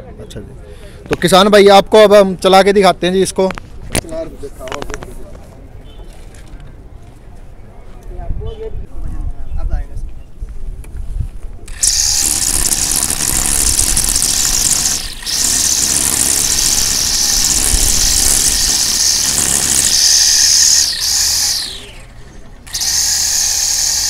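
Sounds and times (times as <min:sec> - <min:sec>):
electric grass trimmer whining: 0:11.7 - 0:24.0.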